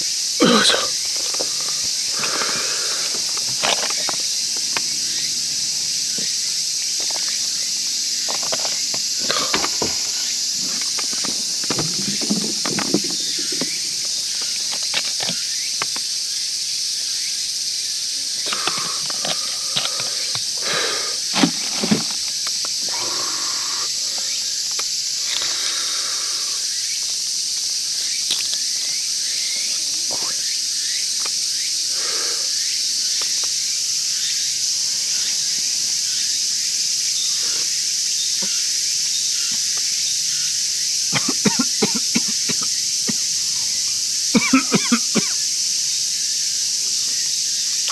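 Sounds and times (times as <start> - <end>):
high insect drone: 0.0 - 47.9
glass and bottles clinking: 9.2 - 14.1.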